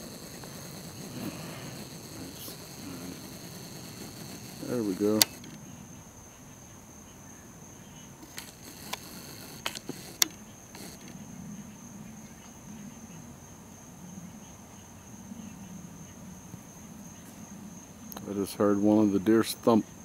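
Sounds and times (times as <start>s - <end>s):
sharp clicks or knocks: 0.0s - 5.6s, 8.2s - 11.2s
high-pitched insect drone: 0.0s - 6.5s, 8.1s - 12.2s.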